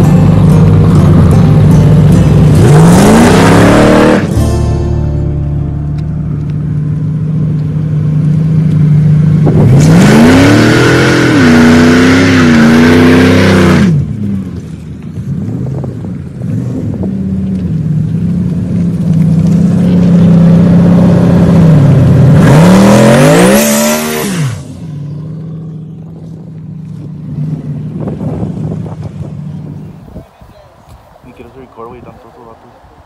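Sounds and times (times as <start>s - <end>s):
truck engine revving: 0.0s - 30.1s.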